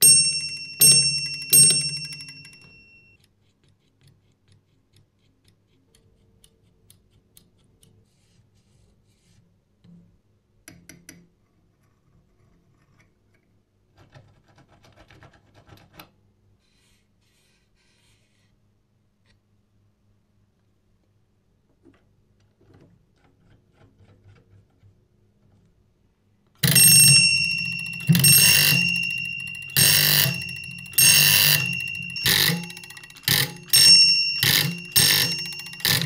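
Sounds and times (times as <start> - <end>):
electric door bell ringing: 0.0 - 3.2, 26.6 - 36.0.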